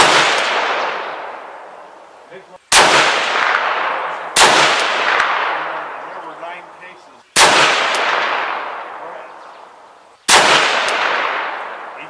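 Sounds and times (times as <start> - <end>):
rifle shots with echo: 0.0 - 1.8, 2.7 - 9.7, 10.3 - 12.0.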